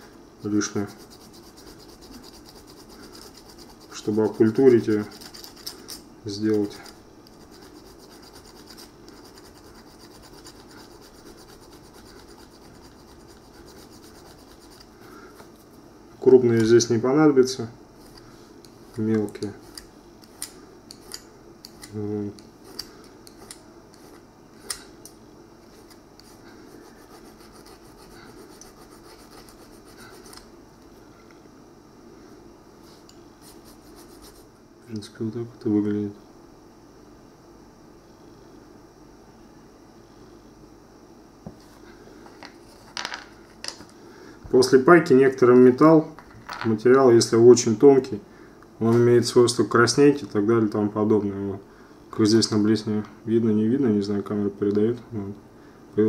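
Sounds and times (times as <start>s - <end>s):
file scratching on metal: 0.7s - 6.0s, 7.4s - 14.9s, 25.8s - 30.4s, 33.5s - 34.4s.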